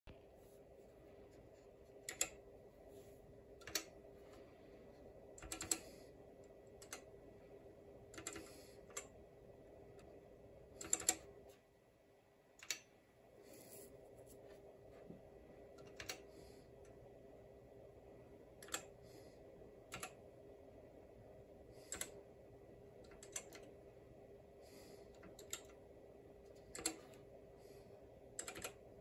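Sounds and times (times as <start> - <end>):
faint steady hum: 0.1 - 29.0.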